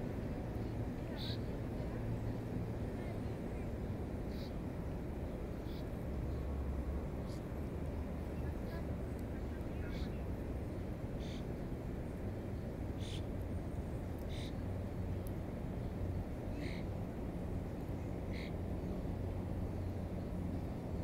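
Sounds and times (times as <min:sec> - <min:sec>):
low background rumble: 0:00.0 - 0:21.0
bird calls: 0:11.2 - 0:11.5, 0:13.0 - 0:13.3, 0:14.2 - 0:14.6, 0:18.3 - 0:18.6.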